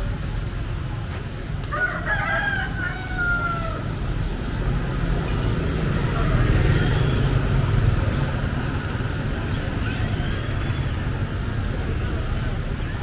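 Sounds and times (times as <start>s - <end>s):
low street rumble: 0.0s - 13.0s
rooster crowing: 1.7s - 3.9s.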